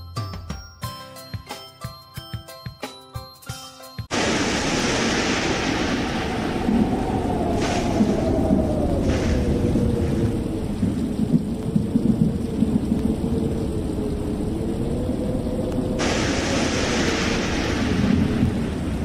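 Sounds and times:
low rumble of thunder: 4.1s - 19.0s
rain-like hiss: 4.1s - 19.0s.

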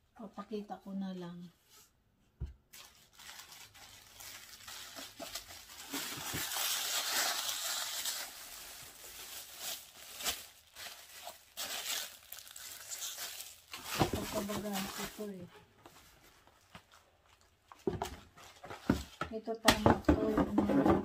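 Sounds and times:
plastic wrapping crinkling: 2.7s - 19.2s.

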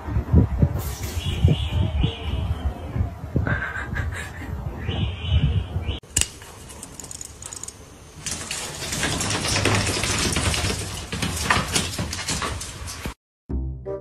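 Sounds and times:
kitten claws skittering on tile: 6.2s - 13.1s.

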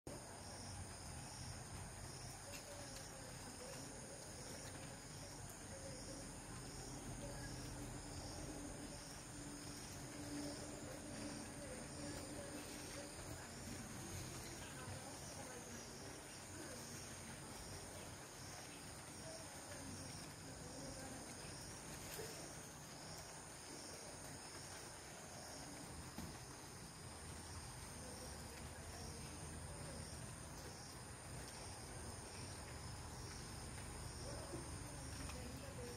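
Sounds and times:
insect chorus chirping: 0.2s - 35.9s.

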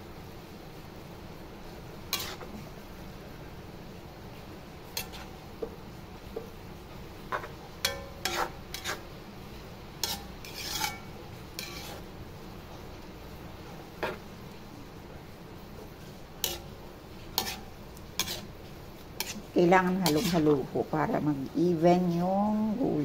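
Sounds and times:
metal spatula scraping a wok: 2.0s - 2.7s, 4.8s - 5.8s, 7.2s - 9.2s, 10.0s - 12.2s, 13.8s - 14.4s, 15.9s - 20.9s.

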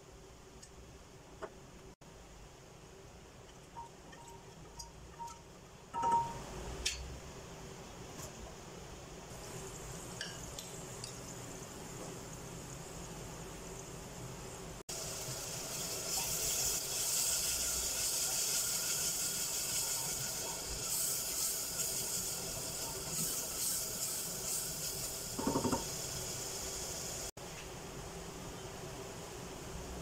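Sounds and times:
onion sizzling in oil: 9.3s - 27.4s.

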